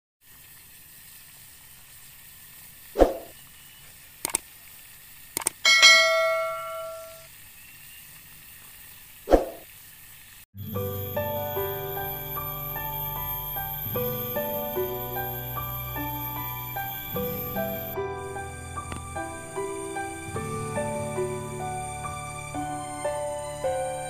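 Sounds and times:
quick clicks: 0:04.2 - 0:04.5, 0:05.4 - 0:05.6
bell ding: 0:05.6 - 0:07.3.

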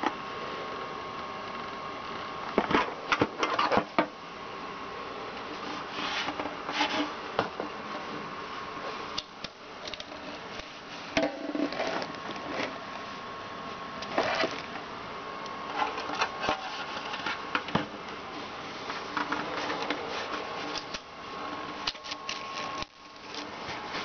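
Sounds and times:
steady background hum: 0:00.0 - 0:24.0.

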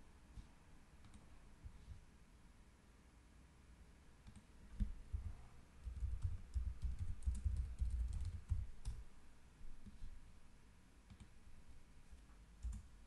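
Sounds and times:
typing on computer keyboard: 0:04.2 - 0:09.0, 0:12.6 - 0:12.9.

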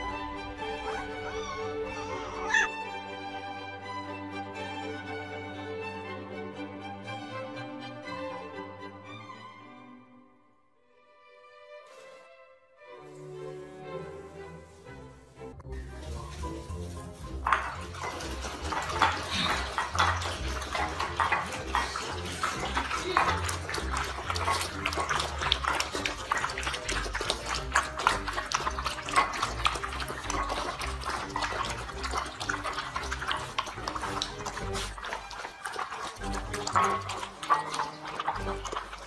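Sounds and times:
puppies lapping and slurping food: 0:00.0 - 0:02.7, 0:15.7 - 0:39.0.

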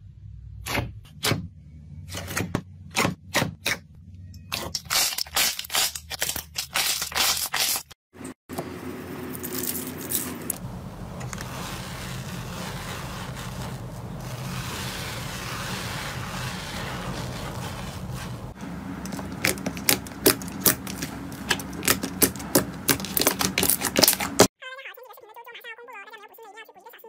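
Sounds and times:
foamy slime crackling: 0:09.2 - 0:24.5.

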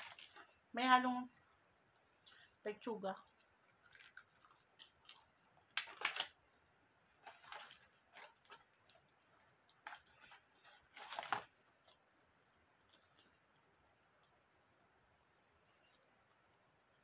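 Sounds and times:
person chewing: 0:03.3 - 0:06.0.

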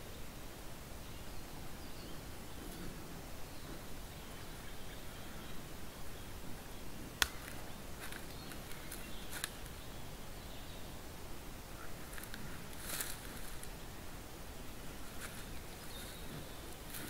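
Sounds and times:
steady hiss: 0:00.0 - 0:17.0
twigs snapping underfoot: 0:07.2 - 0:09.8, 0:12.1 - 0:13.7.

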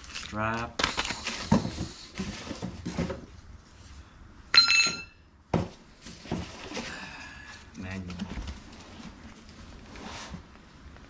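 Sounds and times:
cardboard rustling: 0:00.0 - 0:03.9
ringing metallic clink: 0:04.5 - 0:05.2.

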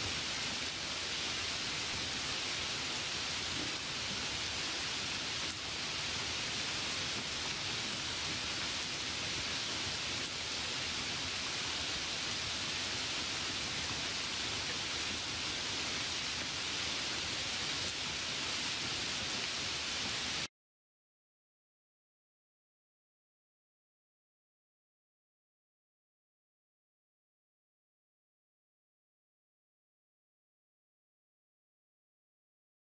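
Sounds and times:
steady hiss: 0:00.0 - 0:20.5.

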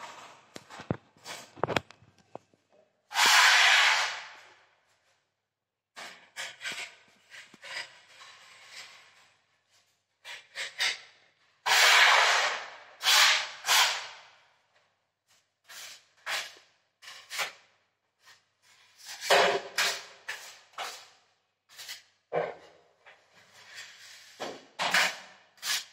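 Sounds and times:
putty knife scraping wall: 0:03.1 - 0:04.4, 0:06.0 - 0:09.4, 0:10.2 - 0:14.2, 0:15.7 - 0:22.6, 0:23.4 - 0:25.9.

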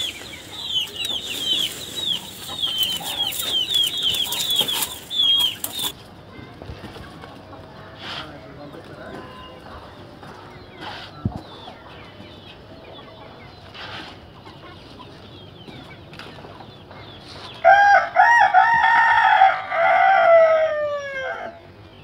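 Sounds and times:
chickens clucking: 0:00.0 - 0:22.0
rooster crowing: 0:17.6 - 0:21.6.

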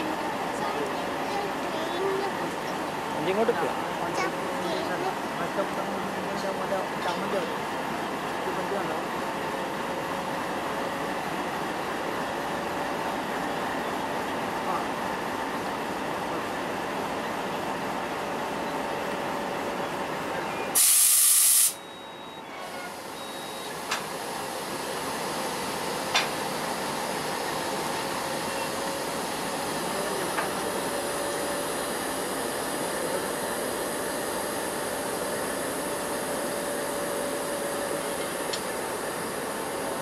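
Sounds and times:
air hissing from brake hose: 0:20.8 - 0:21.8
engine hum: 0:22.9 - 0:40.0.

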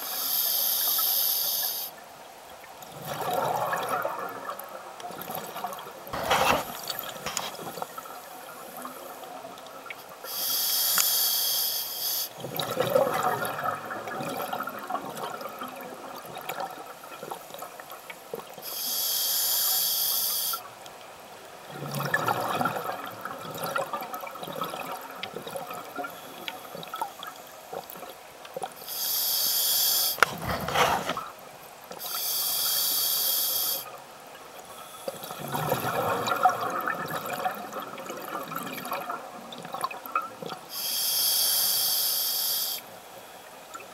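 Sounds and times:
regulator hissing inhalations: 0:00.0 - 0:02.0, 0:10.2 - 0:12.4, 0:18.6 - 0:20.6, 0:28.8 - 0:31.2, 0:32.0 - 0:33.9, 0:40.7 - 0:42.9
exhaled bubbles underwater: 0:02.8 - 0:10.0, 0:12.4 - 0:18.5, 0:21.6 - 0:28.2, 0:35.2 - 0:40.7.

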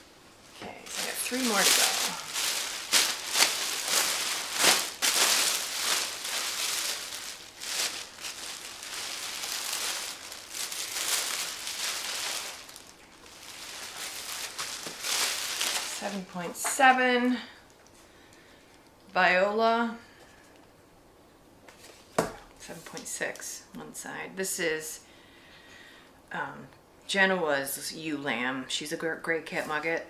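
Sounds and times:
sheep fleece rustling and crinkling: 0:00.4 - 0:16.6.

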